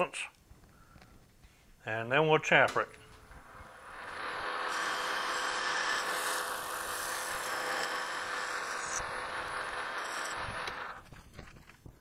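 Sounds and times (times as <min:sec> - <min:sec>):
metal lathe whirring: 0:03.3 - 0:11.0.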